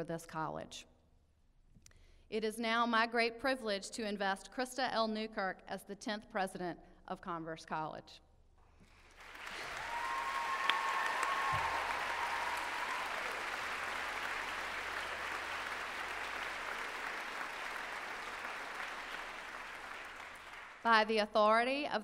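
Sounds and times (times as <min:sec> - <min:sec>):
audience applauding: 0:09.0 - 0:20.9.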